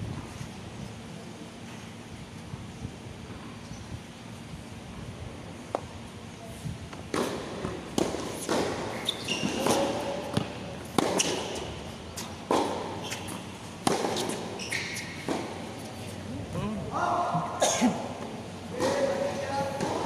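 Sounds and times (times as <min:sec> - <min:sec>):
tennis ball bouncing: 0:06.9 - 0:15.7, 0:18.2 - 0:20.0
racket striking tennis ball: 0:07.1 - 0:15.7, 0:18.8 - 0:20.0
shoe squeaks: 0:08.4 - 0:16.1.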